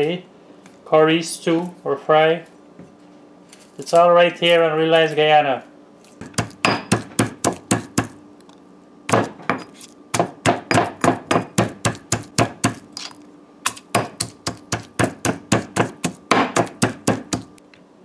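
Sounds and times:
stone pestle pounding in mortar: 6.2s - 8.2s, 9.1s - 12.9s, 13.7s - 17.5s.

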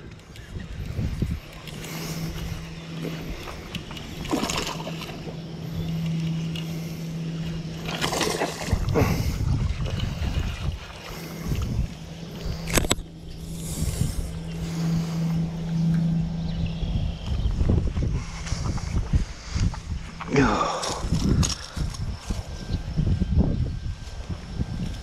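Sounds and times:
fishing reel whirring: 0.0s - 25.0s
fish splashing: 1.7s - 13.0s.

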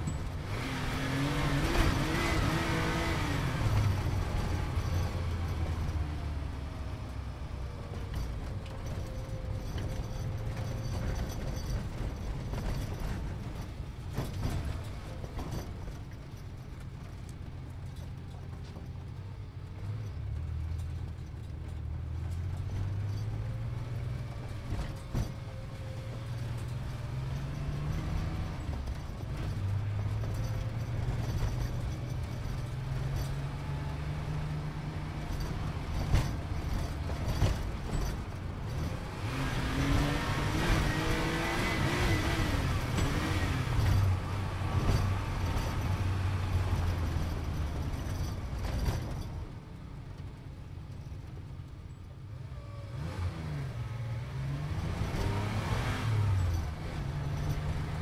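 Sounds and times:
sports car engine accelerating: 0.4s - 5.1s, 39.1s - 46.6s, 52.9s - 58.0s.

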